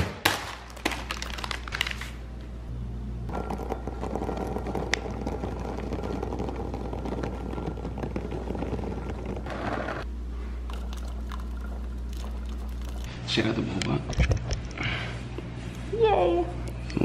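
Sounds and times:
steady low hum: 0:02.1 - 0:17.0
water boiling in a saucepan: 0:10.6 - 0:13.1.

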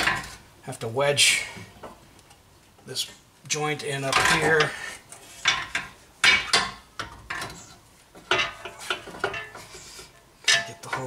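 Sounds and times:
metal clanks and knocks: 0:00.0 - 0:00.4, 0:04.0 - 0:04.8, 0:05.4 - 0:09.7, 0:10.4 - 0:11.0.

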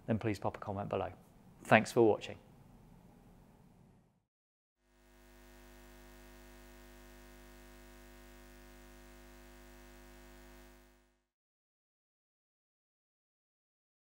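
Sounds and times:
faint electrical hum: 0:04.9 - 0:11.2.

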